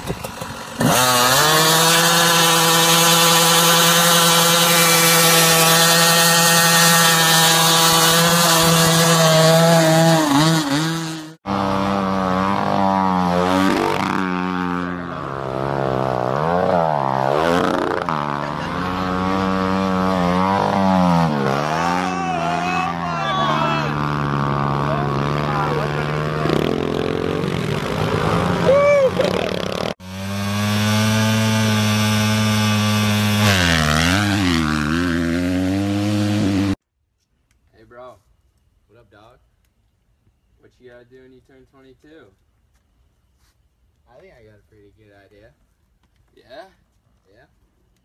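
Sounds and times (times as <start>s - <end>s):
dirt bike engine at high revs: 0.0s - 36.8s
motocross bike engine revving: 0.0s - 36.8s.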